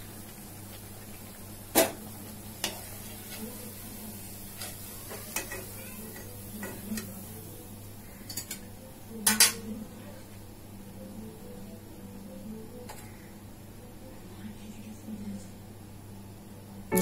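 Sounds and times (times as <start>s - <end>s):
metal utensils clinking: 4.6s - 7.2s.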